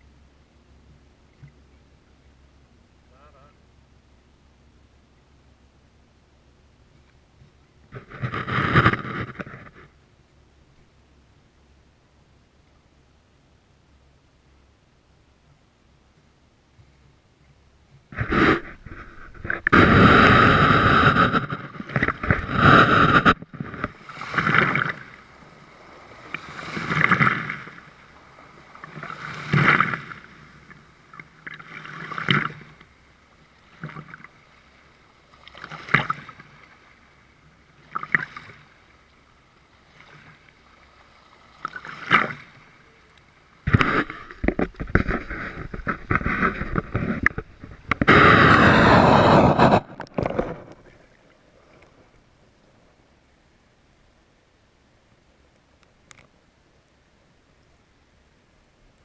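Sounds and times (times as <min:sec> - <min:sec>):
small waves splashing and gurgling: 0:06.9 - 0:10.0, 0:16.8 - 0:53.6.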